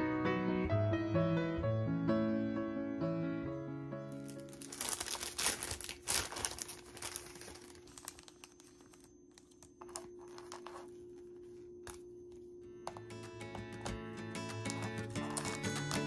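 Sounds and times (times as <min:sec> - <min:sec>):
plastic bag crinkling: 0:04.1 - 0:12.0, 0:13.8 - 0:16.0.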